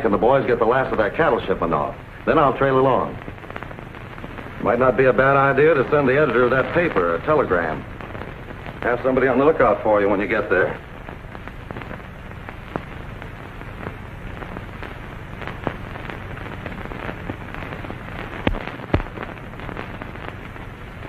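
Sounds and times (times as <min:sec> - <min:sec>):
film soundtrack crackle and hiss: 0:00.0 - 0:21.0
steady low hum: 0:00.0 - 0:21.0
sharp clicks and pops: 0:10.7 - 0:20.7.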